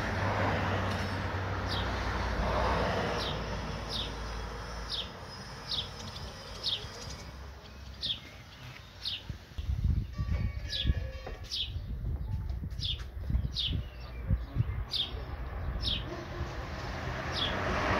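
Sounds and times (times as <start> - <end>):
swallows chirping: 3.1 - 9.4.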